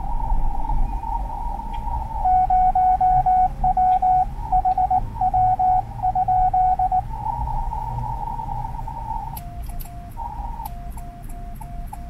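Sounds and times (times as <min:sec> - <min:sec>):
morse code beeps: 0:02.2 - 0:07.1.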